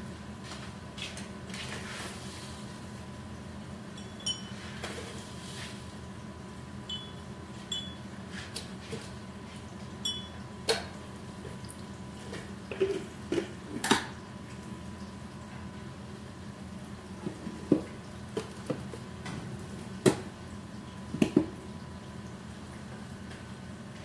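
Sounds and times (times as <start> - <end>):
steady low hum: 0.0 - 14.4
utensils and dishes clinking: 4.0 - 5.0, 6.9 - 8.0, 10.0 - 10.9
sharp clicks with ringing: 6.9 - 8.0.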